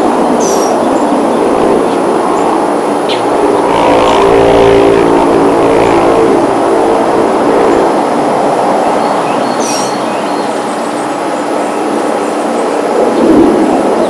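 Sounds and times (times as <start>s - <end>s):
aircraft drone overhead: 0.0s - 14.0s.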